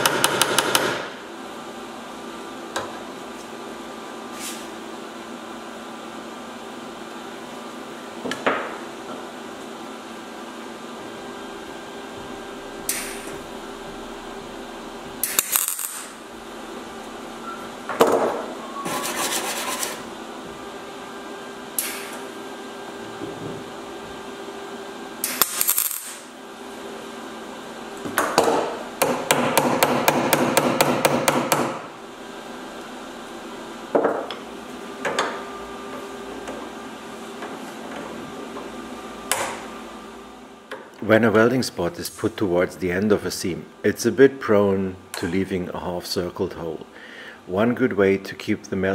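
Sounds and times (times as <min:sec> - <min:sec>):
steady hum: 0:00.0 - 0:48.9
welder arc crackle: 0:12.8 - 0:13.4, 0:15.2 - 0:16.3, 0:25.2 - 0:26.3.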